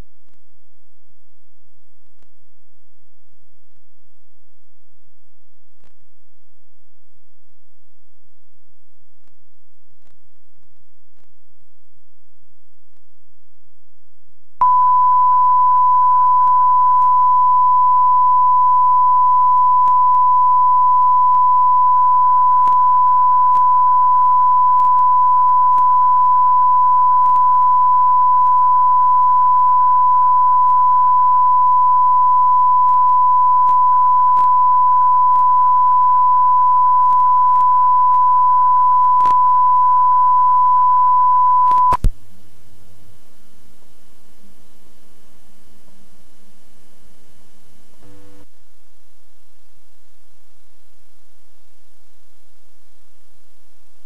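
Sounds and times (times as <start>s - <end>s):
tape hiss: 0.0s - 54.0s
electronic test tone: 14.6s - 42.1s
small clicks: 22.6s - 26.4s, 27.2s - 27.5s, 32.8s - 34.6s, 37.0s - 38.2s.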